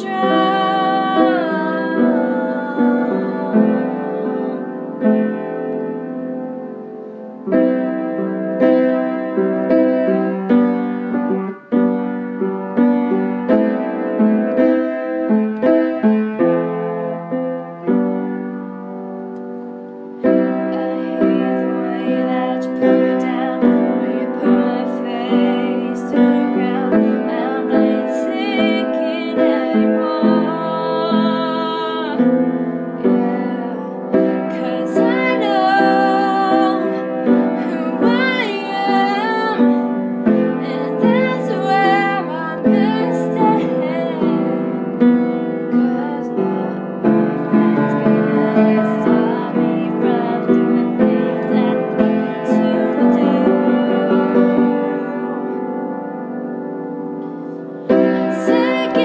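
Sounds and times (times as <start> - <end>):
woman singing with vibrato: 0.0 - 5.4, 20.2 - 55.9, 57.9 - 59.0
upright piano: 0.0 - 59.0.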